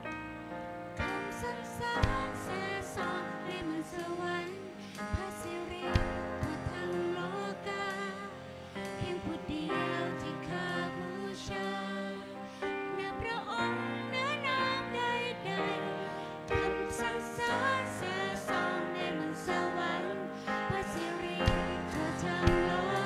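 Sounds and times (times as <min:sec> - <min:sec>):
keyboard: 0:00.0 - 0:23.0
drums: 0:01.0 - 0:03.2, 0:03.8 - 0:07.2, 0:20.6 - 0:23.0
woman singing lead: 0:01.0 - 0:23.0.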